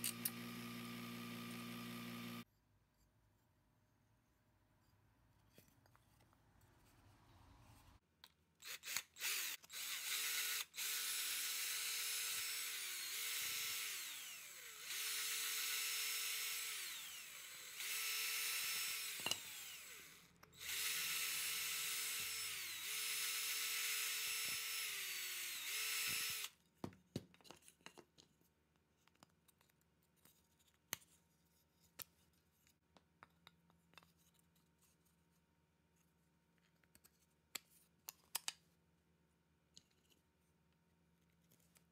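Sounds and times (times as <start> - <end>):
cordless drill motor whine: 0.0 - 2.4, 8.6 - 26.5
drill trigger blips: 0.0 - 2.4, 8.6 - 26.5.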